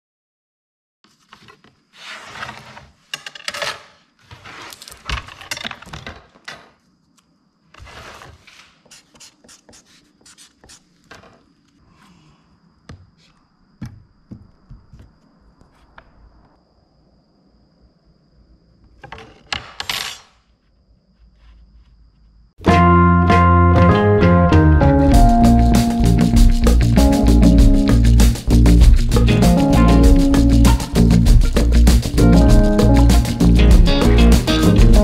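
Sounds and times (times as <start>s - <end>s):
plywood boards scraping and knocking: 1.1s - 6.8s, 7.7s - 11.6s, 18.8s - 20.3s
pencil scratching on plywood: 7.8s - 11.4s
metal square set down: 19.0s - 20.5s.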